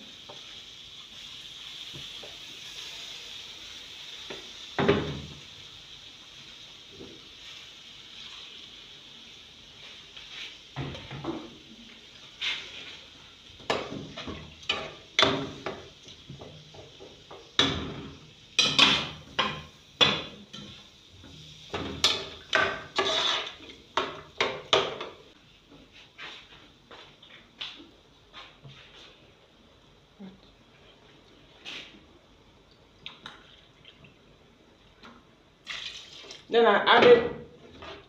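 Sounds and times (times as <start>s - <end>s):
faint steady hiss: 0.0s - 38.0s
metal spoon scraping cooking pot: 22.8s - 23.6s.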